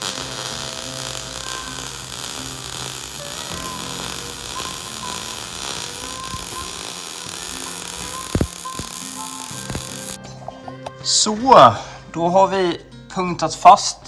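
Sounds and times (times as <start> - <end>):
welding arc crackling hiss: 0.0 - 10.2.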